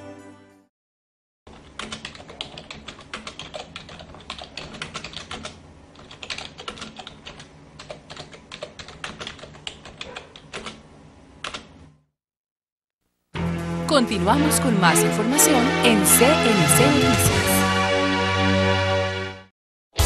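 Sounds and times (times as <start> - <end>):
rapid typing on keyboard: 1.5 - 10.8, 11.4 - 11.7.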